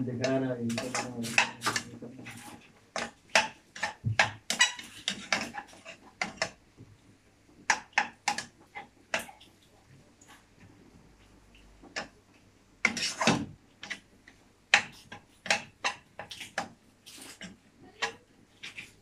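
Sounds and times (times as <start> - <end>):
metal spatula scraping frying pan: 0.2 - 6.6, 12.8 - 14.0.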